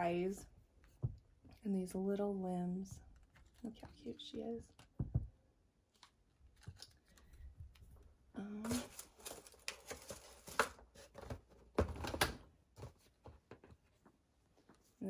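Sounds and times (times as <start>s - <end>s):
cardboard packaging rustling: 8.6s - 12.2s.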